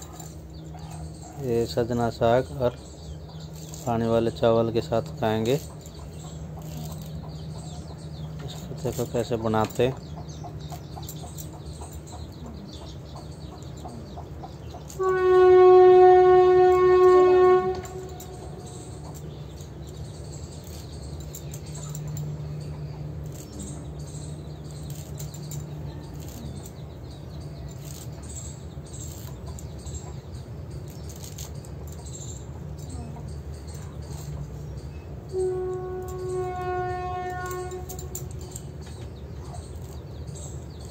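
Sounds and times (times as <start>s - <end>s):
low steady hum: 0.0s - 40.9s
loud horn-like tone: 14.9s - 19.1s, 35.3s - 38.6s.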